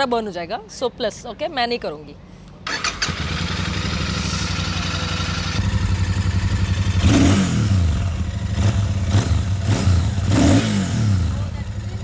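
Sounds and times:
motorcycle engine idling: 2.7 - 12.0.

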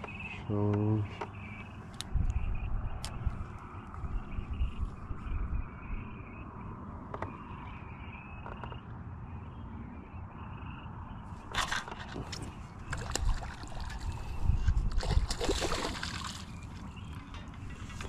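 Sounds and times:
fish splashing in water: 11.5 - 16.8.

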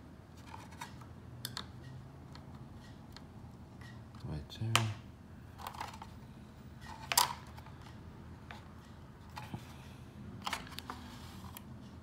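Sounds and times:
plastic parts clicking and tapping: 6.8 - 9.6.

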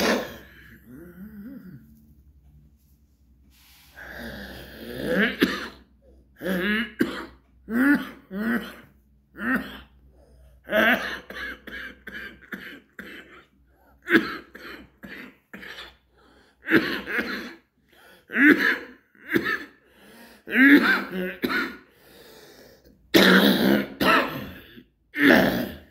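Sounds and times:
man coughing: 0.0 - 1.8, 4.9 - 10.0, 16.6 - 17.7, 18.3 - 19.8, 20.4 - 21.9, 23.1 - 25.9.

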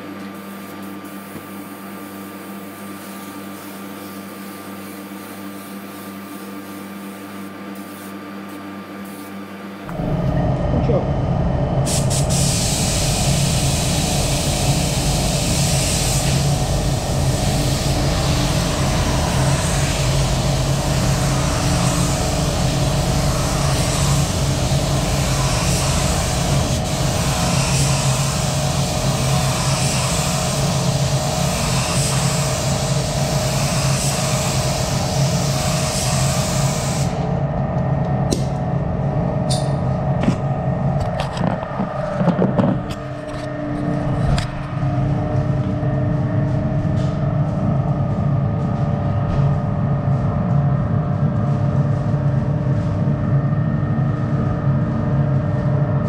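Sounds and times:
spray gun hissing: 0.4 - 8.2, 11.9 - 37.2
steady drone: 9.8 - 56.0.

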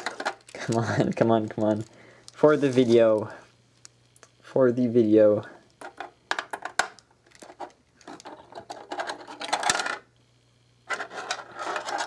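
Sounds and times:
plastic pieces clicking and rattling: 5.9 - 10.0.

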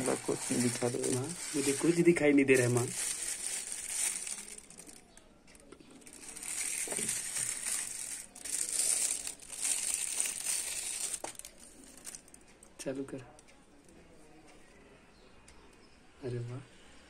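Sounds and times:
plastic wrapping crinkling: 0.0 - 12.4.

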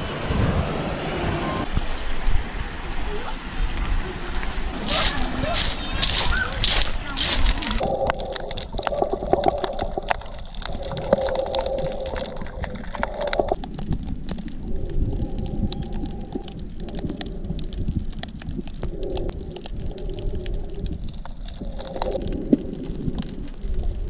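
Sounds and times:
low rumble: 0.0 - 24.0
muffled underwater gurgling: 4.8 - 24.0.

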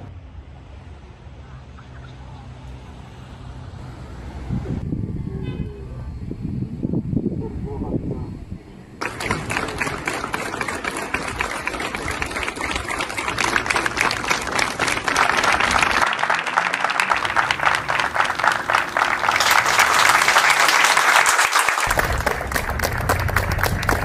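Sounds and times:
crowd applauding: 9.0 - 24.0.

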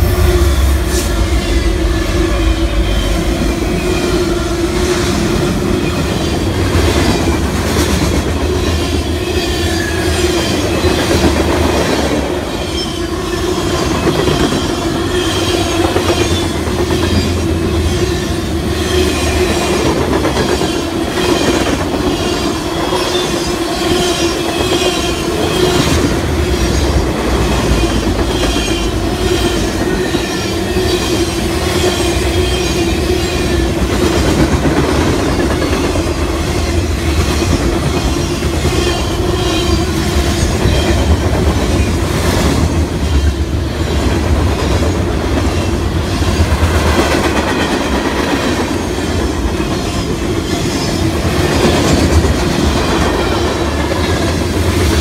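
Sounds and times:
steady tone: 0.0 - 6.1
freight train cars rumbling past: 0.0 - 55.0.

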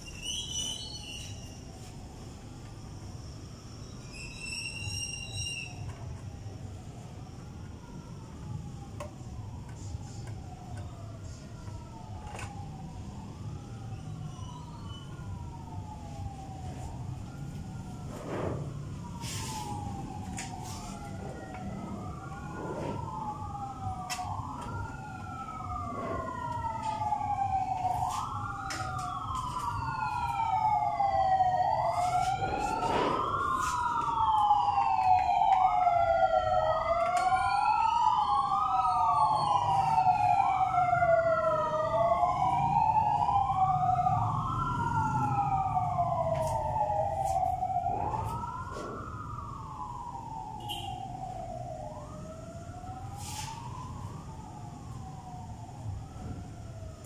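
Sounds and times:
emergency vehicle sirens wailing: 0.0 - 57.0.

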